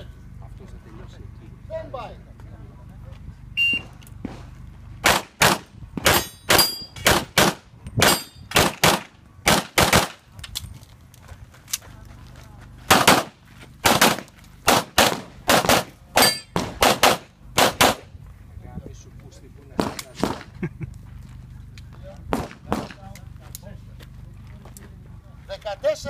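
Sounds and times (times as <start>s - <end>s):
pistol shots: 4.3s - 10.2s, 12.9s - 18.0s, 19.8s - 20.5s, 22.3s - 23.0s
steel targets ringing: 6.1s - 7.0s, 16.2s - 16.6s.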